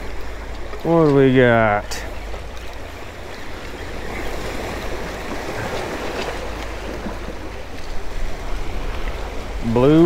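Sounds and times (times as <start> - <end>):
surf washing against rocks: 0.0 - 10.0
wind rumbling on microphone: 0.0 - 10.0.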